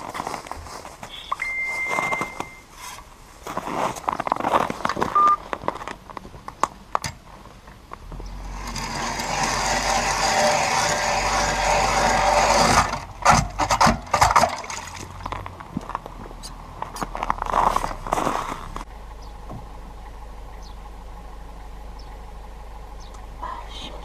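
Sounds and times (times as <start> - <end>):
ice auger grinding scrape: 8.4 - 14.2, 17.4 - 18.8.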